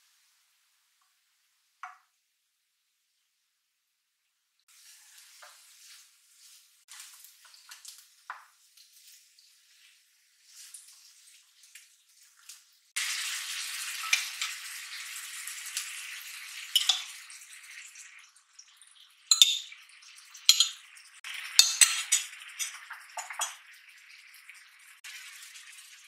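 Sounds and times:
tofu sizzling in oil: 0:04.6 - 0:26.0
utensils scraping a pan: 0:21.6 - 0:23.6.

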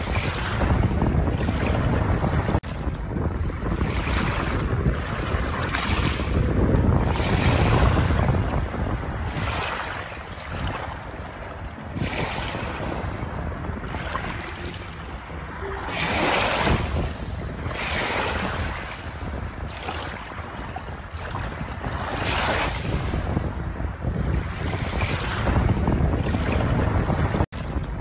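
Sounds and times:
wind rumble on microphone: 0:00.0 - 0:28.0
small waves lapping on pebbles: 0:15.9 - 0:23.1.

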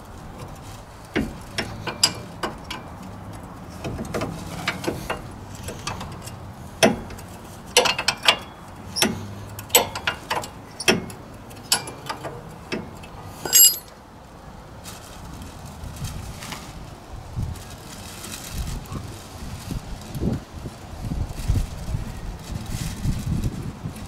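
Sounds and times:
wrench clicking on bolts: 0:01.2 - 0:02.9, 0:03.8 - 0:13.9
loud ringing metal clink: 0:13.5 - 0:13.9.

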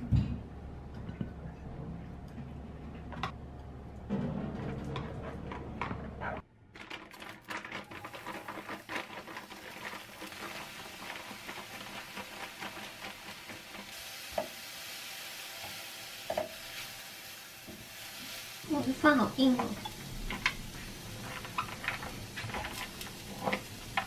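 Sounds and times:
food sizzling in a wok: 0:08.3 - 0:24.0
spatula scraping a pan: 0:19.6 - 0:24.0.

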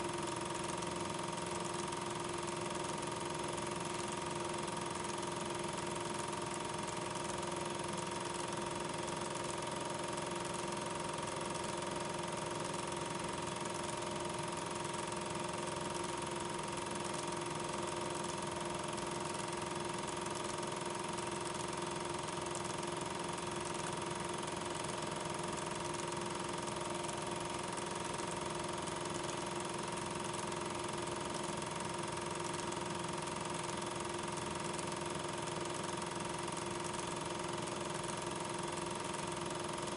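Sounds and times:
film projector whirring: 0:00.0 - 0:39.9.

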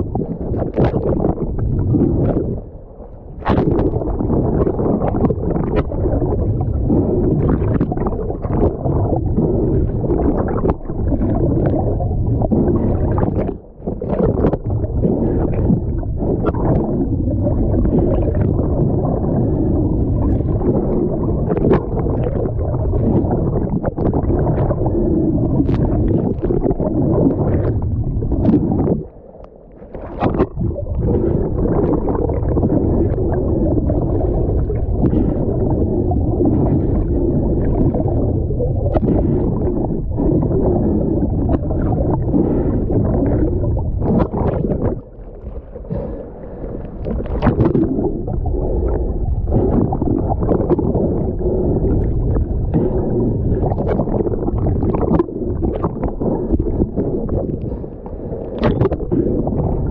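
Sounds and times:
underwater low rumble: 0:00.0 - 0:59.9
water bubbling: 0:00.0 - 0:59.9
underwater clicks: 0:25.5 - 0:59.9.

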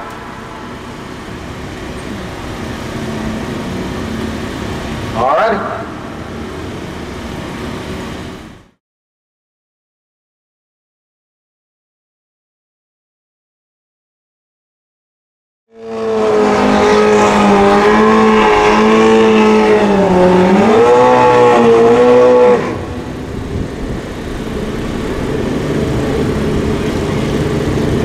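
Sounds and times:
motorcycle engine revving high: 0:00.0 - 0:08.8, 0:15.7 - 0:28.0
rough engine rumble: 0:00.0 - 0:08.8, 0:15.8 - 0:28.0.

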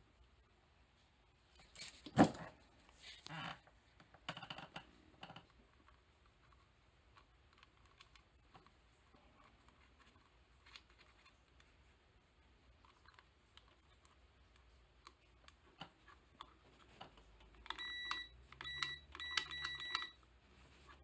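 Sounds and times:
multimeter short beeps: 0:17.8 - 0:20.2.

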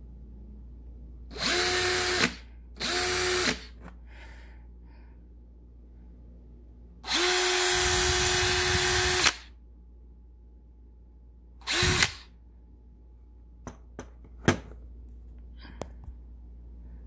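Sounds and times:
cordless drill whining: 0:01.3 - 0:03.8, 0:07.0 - 0:09.5, 0:11.6 - 0:12.3.

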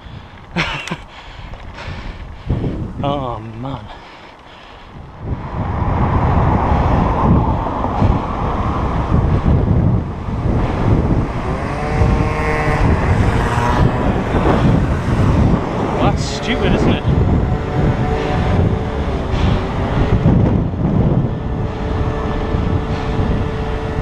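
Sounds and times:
wind rumbling on microphone: 0:00.0 - 0:24.0
motorbike engine passing: 0:05.2 - 0:24.0.

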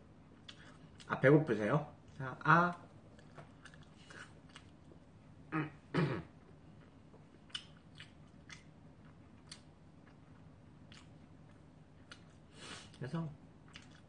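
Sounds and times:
person chewing: 0:00.3 - 0:01.1, 0:03.0 - 0:05.7, 0:06.4 - 0:13.0, 0:13.6 - 0:14.0
throat-clearing hum: 0:05.5 - 0:06.4
wet mouth clicks: 0:07.5 - 0:08.7.

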